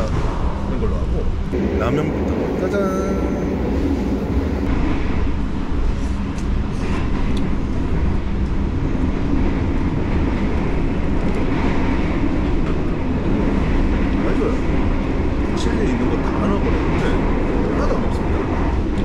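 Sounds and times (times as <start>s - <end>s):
train rumble from inside carriage: 0.0s - 19.0s.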